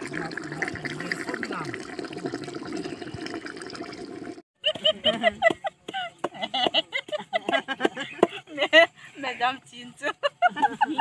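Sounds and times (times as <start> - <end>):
people talking: 0.0 - 1.8, 4.7 - 11.0.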